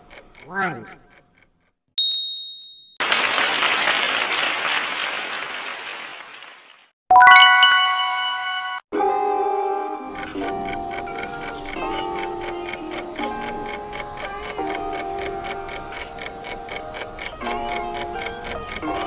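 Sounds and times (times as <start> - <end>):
high ding: 2.0 - 3.0, 7.1 - 8.8
applause: 3.0 - 7.4
bright bell chime: 7.1 - 8.8
music: 7.1 - 19.0.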